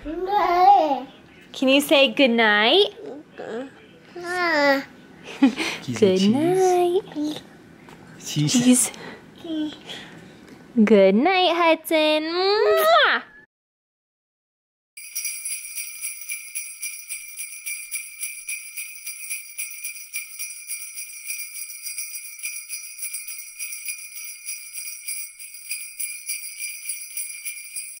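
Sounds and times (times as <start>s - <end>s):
sleigh bells jingling: 15.0s - 28.0s.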